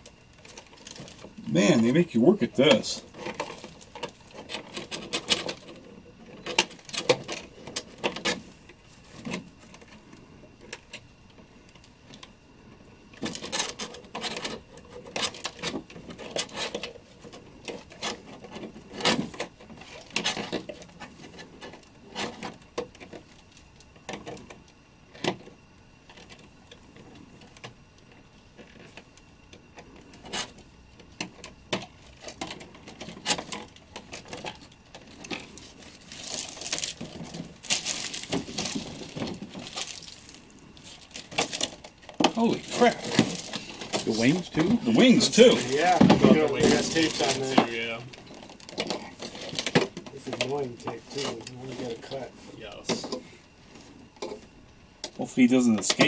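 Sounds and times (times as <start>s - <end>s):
plastic bag crinkling: 35.5s - 41.8s, 42.4s - 49.7s.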